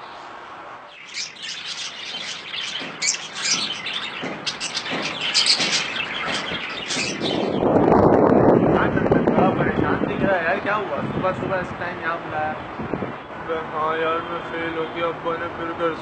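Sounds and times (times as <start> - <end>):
birds chirping: 0.9 - 8.1.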